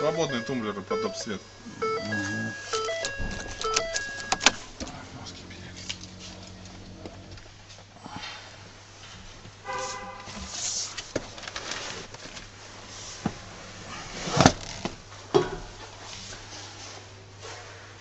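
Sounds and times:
brief pitched tone: 0.0 - 4.6.

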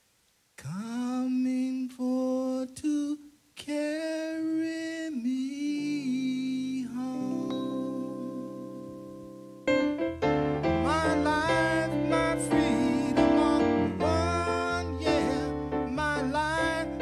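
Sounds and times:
man singing into microphone: 0.6 - 8.9, 10.8 - 17.0
sustained keyboard chords: 7.0 - 17.0.

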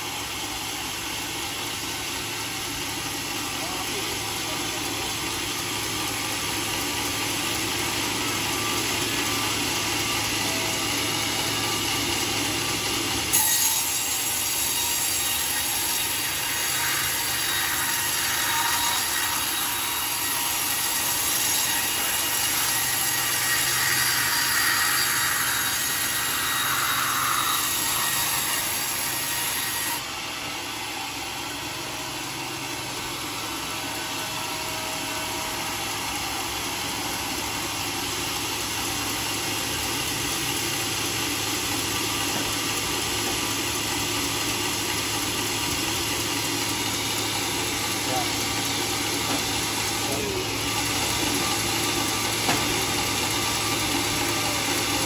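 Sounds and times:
saw blade rasping through wood: 0.9 - 30.2.

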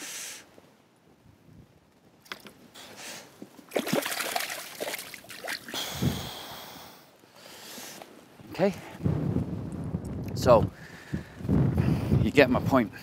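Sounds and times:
water splashing: 3.7 - 5.8.

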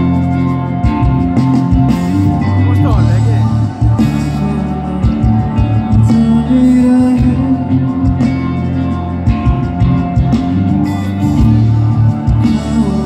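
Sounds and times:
electric bass guitar: 0.0 - 13.0
live rock band: 0.0 - 13.0
person singing: 2.8 - 8.7, 12.3 - 13.0.

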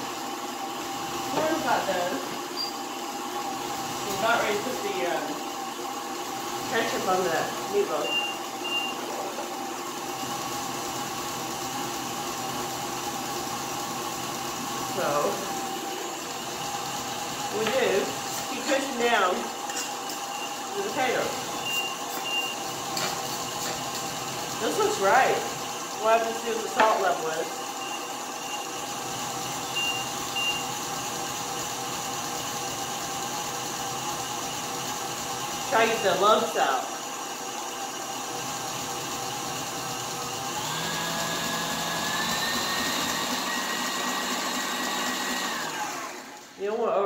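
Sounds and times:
beater mashing potatoes in steel bowl: 0.0 - 47.0
stand mixer motor humming: 0.0 - 47.0.

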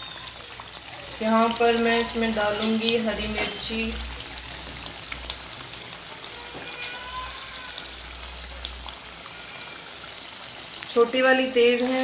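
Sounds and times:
food sizzling in oil: 0.0 - 12.0.

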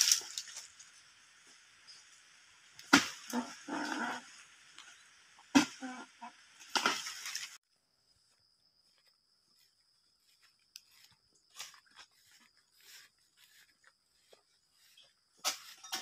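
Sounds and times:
rustling crash of leaves: 0.0 - 0.9
footsteps through grass: 8.2 - 15.9.

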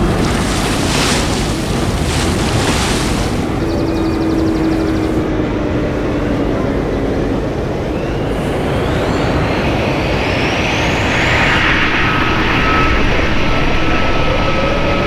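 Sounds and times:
rush of water and wind: 0.0 - 15.0
high electric whine: 7.8 - 15.0.

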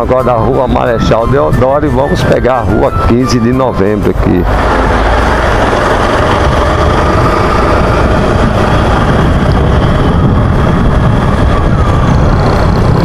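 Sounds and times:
wind noise on microphone: 0.0 - 13.0
motorcycle engine running: 4.3 - 13.0.

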